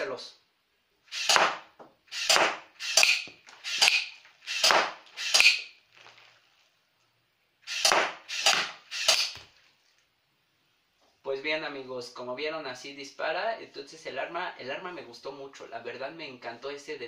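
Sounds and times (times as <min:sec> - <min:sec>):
toy blaster shots clacking: 0:01.1 - 0:05.7, 0:07.6 - 0:09.4.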